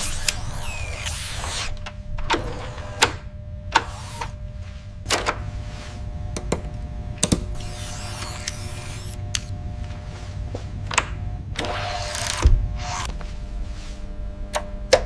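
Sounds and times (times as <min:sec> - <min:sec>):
low hum with whirring tone: 0:00.0 - 0:15.0
sharp mechanical clicks: 0:07.2 - 0:09.5.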